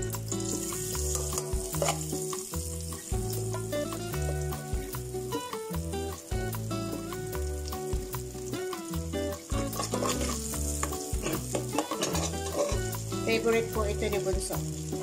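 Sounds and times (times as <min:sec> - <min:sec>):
background music with bass: 0:00.0 - 0:15.0
butter sizzling in oil: 0:00.0 - 0:15.0
metal ladle stirring pot: 0:01.1 - 0:02.1, 0:09.5 - 0:12.9.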